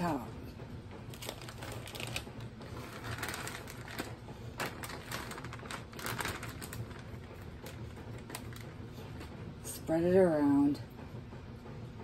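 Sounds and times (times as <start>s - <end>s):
cheese falling with clicks and rustles: 1.1s - 8.8s
plastic bag crinkling: 1.1s - 8.9s.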